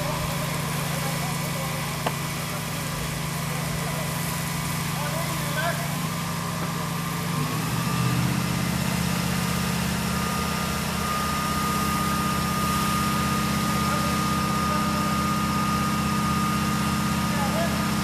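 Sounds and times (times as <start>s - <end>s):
engine idling: 0.0s - 18.0s.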